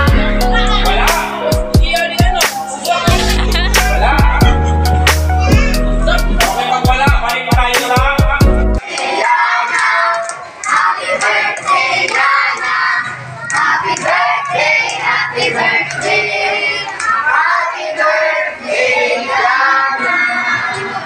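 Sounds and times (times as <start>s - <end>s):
children singing: 0.0s - 8.1s, 8.8s - 21.0s
children shouting: 8.8s - 21.0s.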